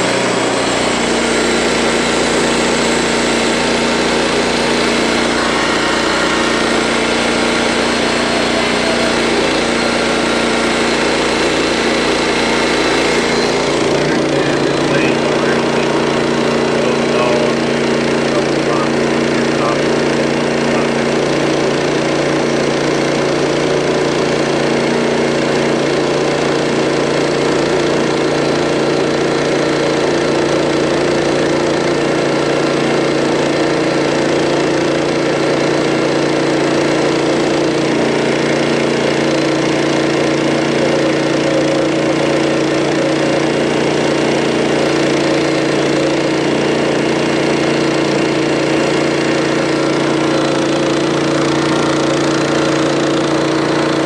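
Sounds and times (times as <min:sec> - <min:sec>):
band saw blade cutting log: 0:00.0 - 0:54.0
gasoline engine running: 0:00.0 - 0:54.0.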